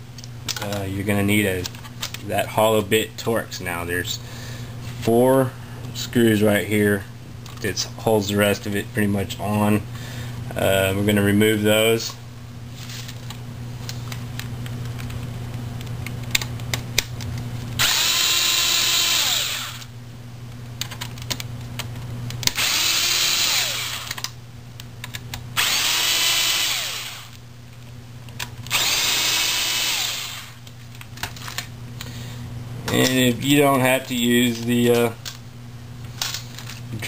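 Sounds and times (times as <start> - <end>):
power drill whining: 17.8 - 19.9, 22.5 - 24.2, 25.6 - 27.4, 28.7 - 30.6.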